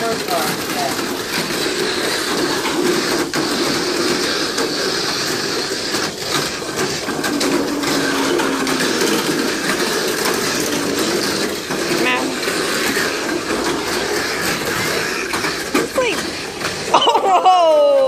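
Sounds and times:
small electric motors whirring: 0.0s - 18.0s
toy cars rattling against track walls: 0.0s - 18.0s.

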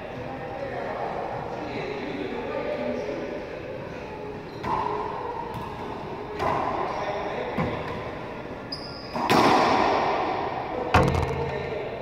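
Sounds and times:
racquetball smacks: 9.2s - 10.2s, 10.9s - 11.7s.

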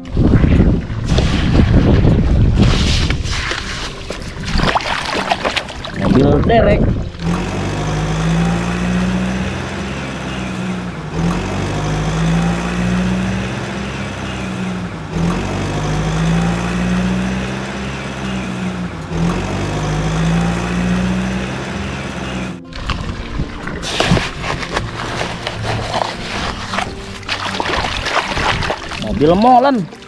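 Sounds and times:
truck engine idling: 7.0s - 22.6s.

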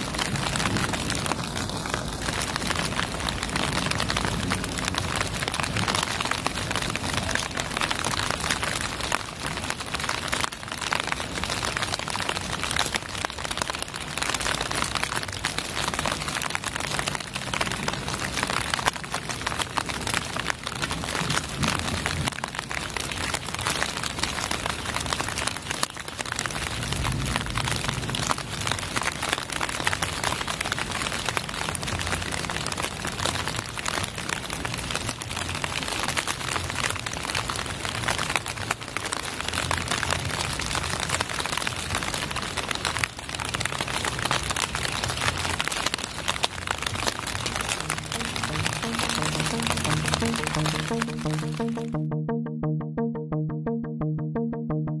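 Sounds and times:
steady rain falling: 0.0s - 51.9s.

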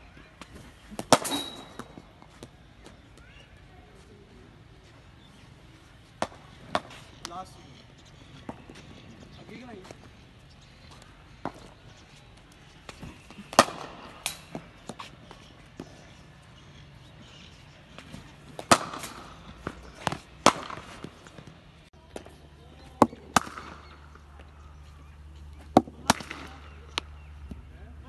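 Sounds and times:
bat striking ball: 0.9s - 2.0s, 6.2s - 7.1s, 12.9s - 15.0s, 18.6s - 21.1s, 23.0s - 24.1s, 25.7s - 27.1s.

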